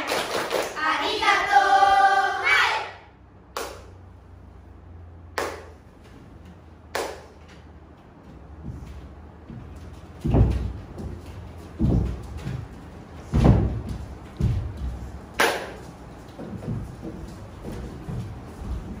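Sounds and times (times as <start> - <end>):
children chanting in unison: 0.0 - 3.1.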